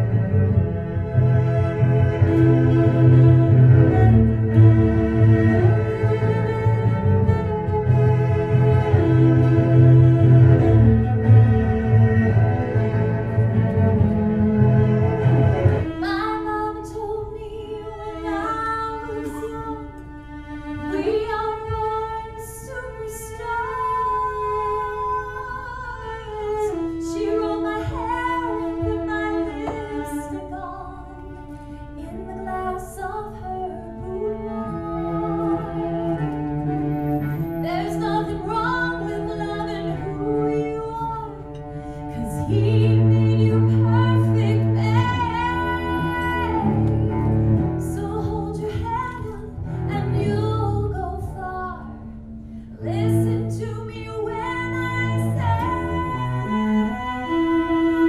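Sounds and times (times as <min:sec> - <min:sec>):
cello accompaniment: 0:00.0 - 0:58.0
woman singing into microphone: 0:16.0 - 0:19.9, 0:20.9 - 0:31.4, 0:32.0 - 0:36.0, 0:37.6 - 0:47.1, 0:47.8 - 0:52.0, 0:52.8 - 0:58.0.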